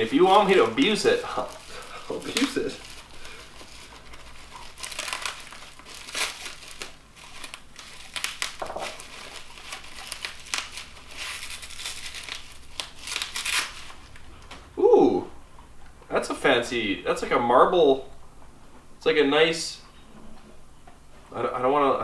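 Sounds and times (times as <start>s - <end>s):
packaging wrap crinkling: 0.0s - 14.5s.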